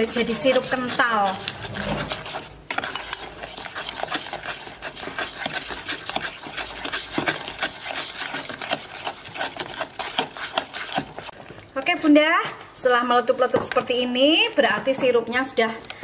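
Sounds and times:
spatula scraping a pot: 0.0s - 11.4s
thick syrup bubbling and popping: 0.0s - 12.0s.

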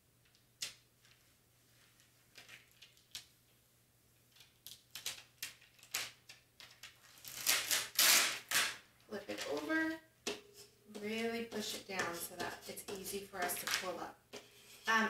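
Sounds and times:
transfer tape crinkling: 4.3s - 9.9s.

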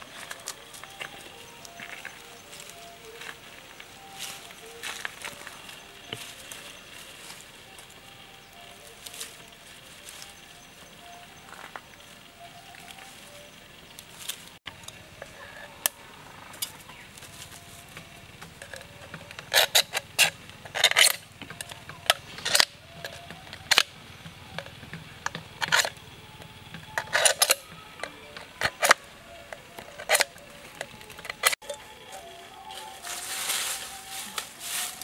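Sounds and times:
knife scraping metal can: 19.4s - 21.2s.

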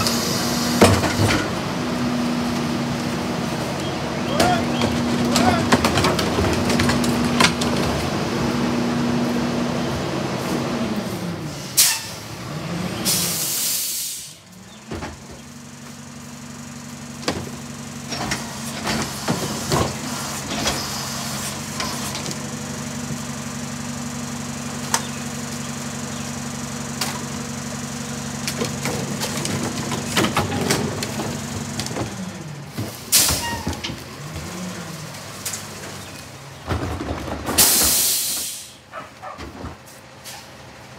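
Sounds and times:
garbage truck engine revving: 0.0s - 40.9s
plastic carts banging on hopper: 4.3s - 8.0s, 28.5s - 34.6s
loud air hiss: 13.0s - 14.4s, 37.6s - 38.9s.

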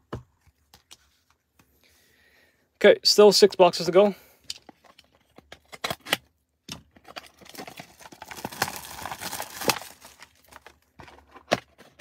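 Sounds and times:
plastic wrap crinkling and tearing: 7.0s - 11.5s.

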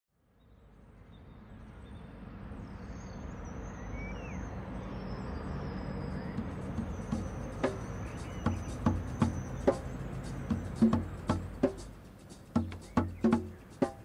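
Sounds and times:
faint bird chirps: 0.3s - 14.0s
traffic rumble: 0.6s - 14.0s.

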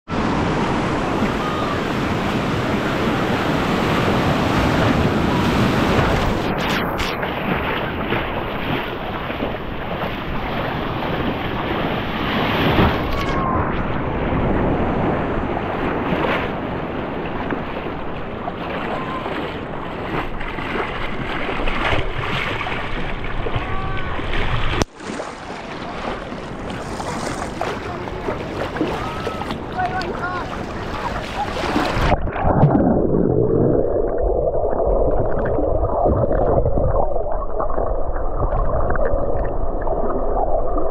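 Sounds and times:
surf washing onto beach: 0.1s - 32.8s.

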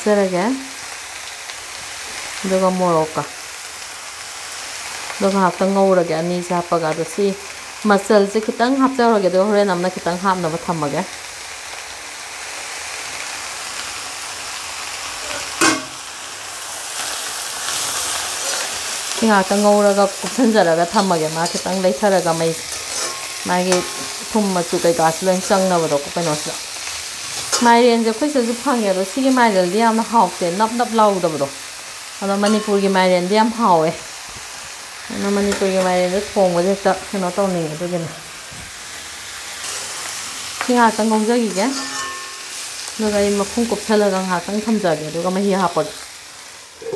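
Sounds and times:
food sizzling in oil: 0.0s - 46.9s
spatula scraping pan: 18.0s - 25.2s, 32.4s - 32.9s, 41.5s - 42.6s.

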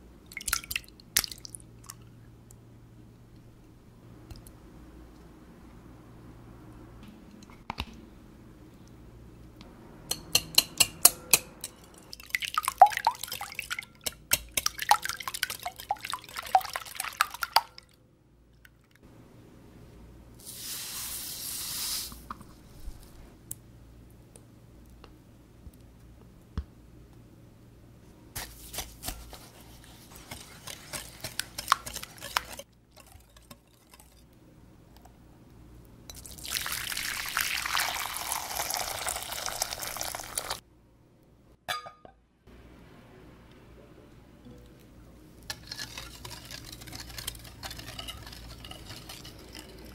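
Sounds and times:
sugar pouring hiss: 20.4s - 22.3s, 36.2s - 40.6s
glass clinks: 41.7s - 42.2s.

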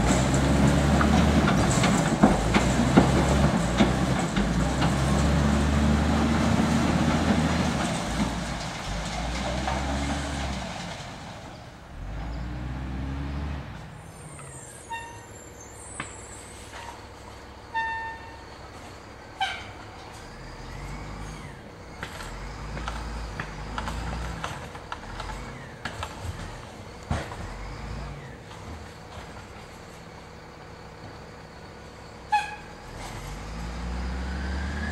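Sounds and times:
diesel truck engine: 0.0s - 34.9s.

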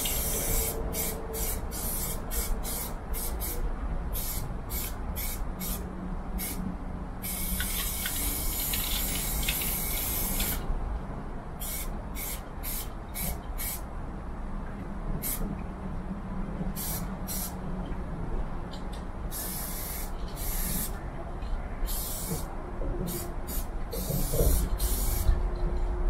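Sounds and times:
spray paint can hissing: 0.0s - 3.6s, 4.2s - 5.8s, 6.4s - 6.6s, 7.2s - 10.6s, 11.6s - 13.8s, 16.8s - 17.5s, 19.3s - 21.0s, 21.9s - 22.5s, 23.1s - 25.3s.

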